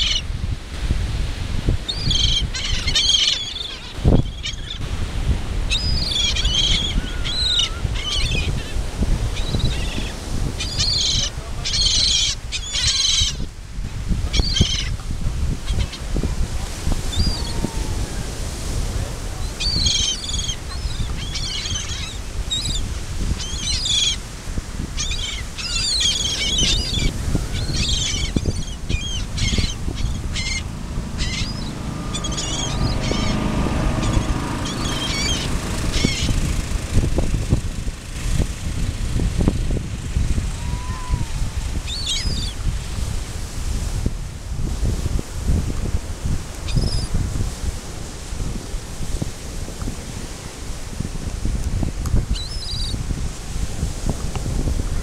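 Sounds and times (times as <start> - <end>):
surf: 0.0 - 55.0
wind on microphone: 0.0 - 55.0
gulls calling: 1.8 - 4.9, 5.7 - 13.5, 14.3 - 15.0, 15.6 - 18.4, 19.3 - 37.5, 40.2 - 42.7, 52.2 - 53.0.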